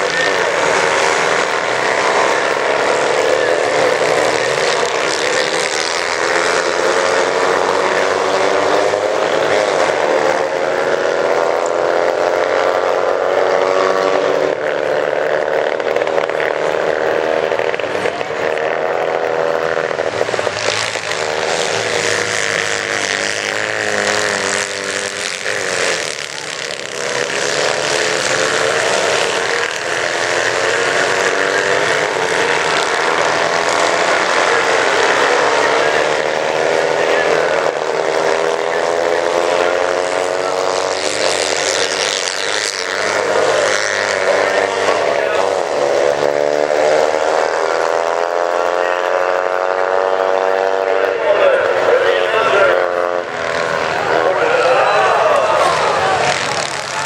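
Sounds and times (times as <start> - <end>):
kart engines racing: 0.0 - 57.0.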